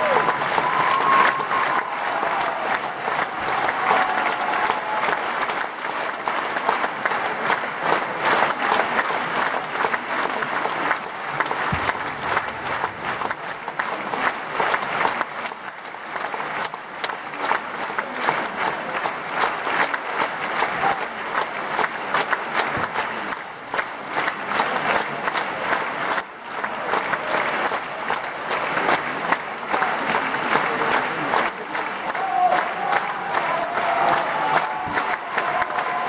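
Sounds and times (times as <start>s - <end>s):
audience applauding: 0.0s - 36.0s.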